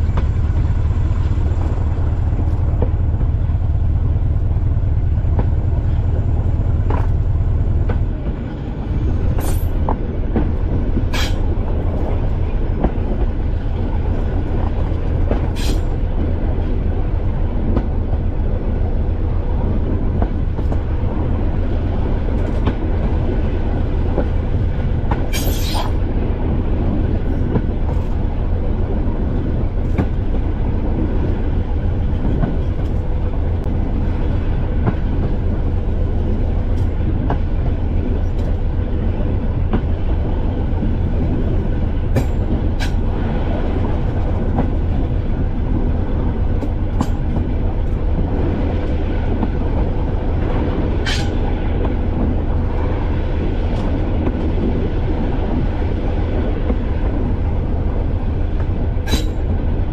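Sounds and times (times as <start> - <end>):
diesel train engine drone: 0.0 - 59.9
train wheels clacking on track: 42.0 - 43.2, 58.6 - 59.7.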